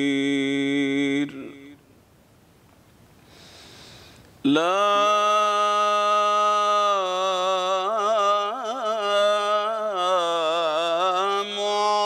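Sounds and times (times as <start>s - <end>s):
man chanting: 0.0s - 1.8s, 4.5s - 12.0s.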